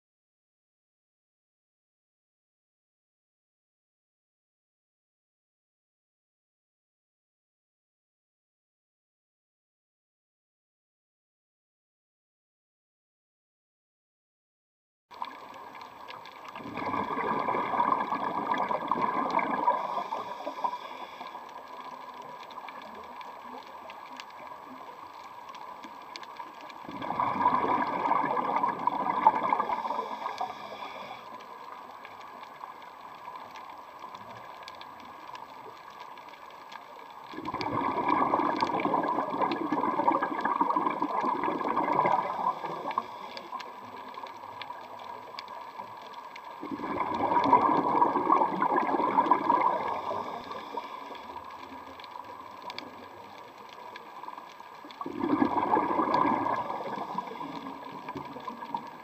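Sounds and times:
regulator bubbles underwater: 0:15.1 - 0:59.0
faint steady whine: 0:16.8 - 0:27.8, 0:28.6 - 0:37.2, 0:49.6 - 0:55.4.

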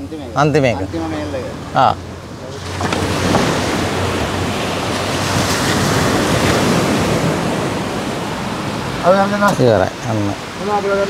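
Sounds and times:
waves washing on shore: 0:00.0 - 0:11.0
wind on microphone: 0:00.8 - 0:09.1.

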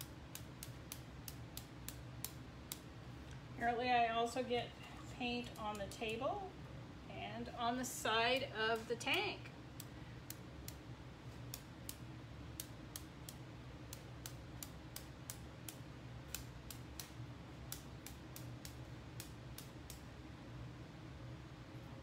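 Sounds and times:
brush tapping paint spatter clicks: 0:00.0 - 0:02.9.

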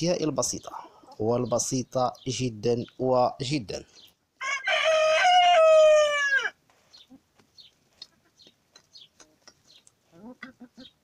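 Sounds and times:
rooster crowing: 0:04.4 - 0:06.6.

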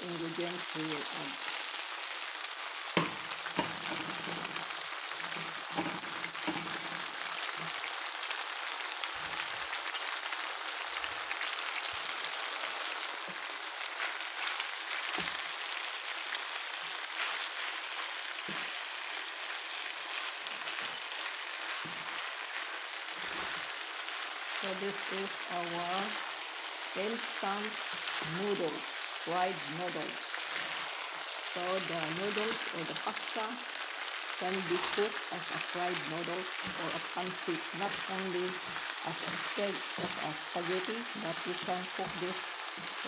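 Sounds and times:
noodles sizzling in a frying pan: 0:00.0 - 0:43.0
wooden spatula knocking pan: 0:03.0 - 0:04.6.

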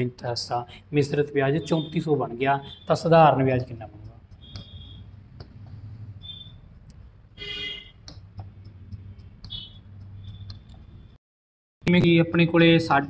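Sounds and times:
high-pitched squeaks: 0:04.1 - 0:05.4, 0:06.0 - 0:07.0, 0:07.7 - 0:11.2.

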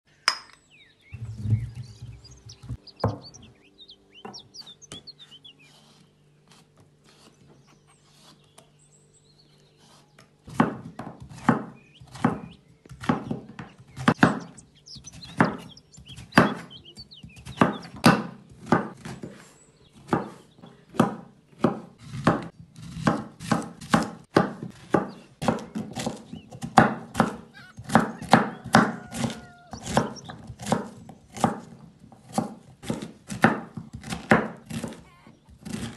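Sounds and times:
clinks and knocks: 0:00.2 - 0:00.6
knife chopping on cutting board: 0:09.9 - 0:14.6, 0:15.2 - 0:19.4, 0:20.0 - 0:35.9.

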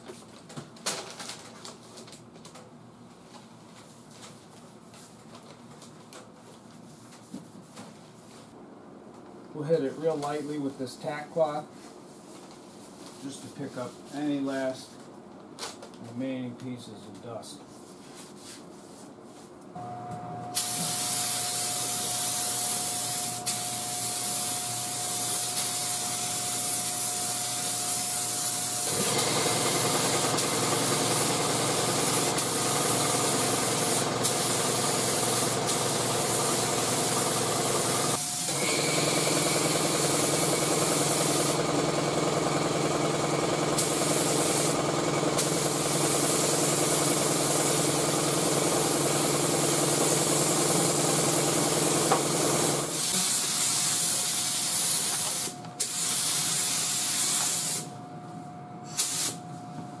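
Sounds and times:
steady machine hum: 0:19.6 - 0:54.7, 0:57.8 - 1:00.0
air spray gun hissing: 0:20.6 - 0:41.6, 0:43.7 - 0:57.9, 0:58.9 - 0:59.4.

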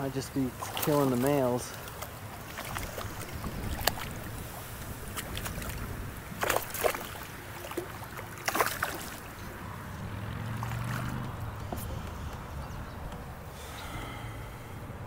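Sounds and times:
water lapping at hull: 0:00.0 - 0:15.0
wind: 0:00.0 - 0:15.0
fish splashing at surface: 0:06.4 - 0:09.4.

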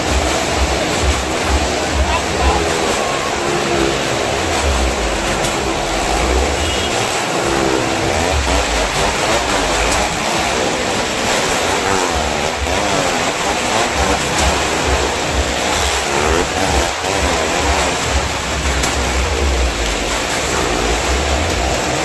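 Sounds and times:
engines revving past: 0:00.0 - 0:22.0
tyres rumbling on planks: 0:00.0 - 0:22.0.

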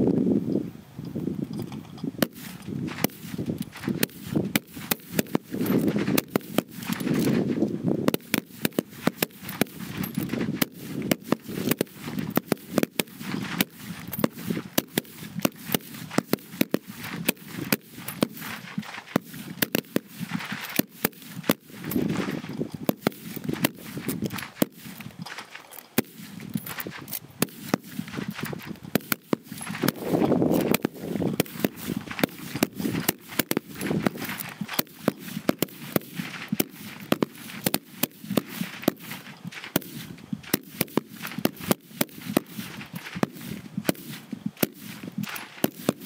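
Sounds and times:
rifle shots: 0:02.2 - 0:46.0.

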